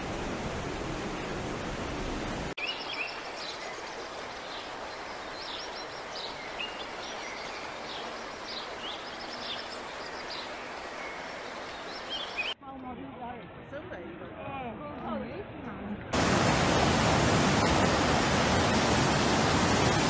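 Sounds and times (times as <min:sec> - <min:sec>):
floodwater rushing over rocks: 0:16.2 - 0:20.0.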